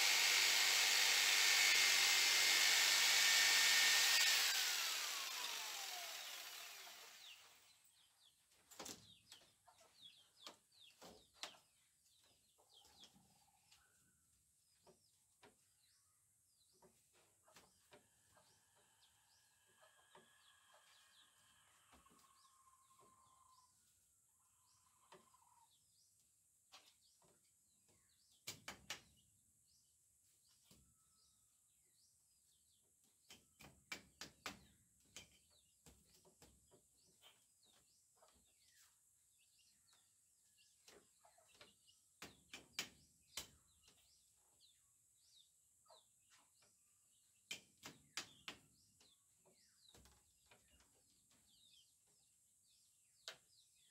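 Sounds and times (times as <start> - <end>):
faint bird chirps: 17.5 - 25.7.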